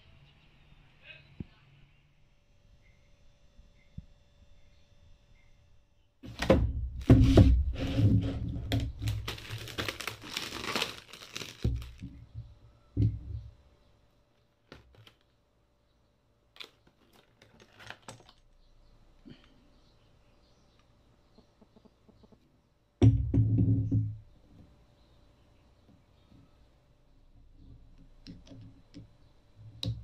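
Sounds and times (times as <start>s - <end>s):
plastic packaging tearing and crinkling: 7.9s - 12.2s, 14.6s - 15.3s, 16.5s - 18.5s.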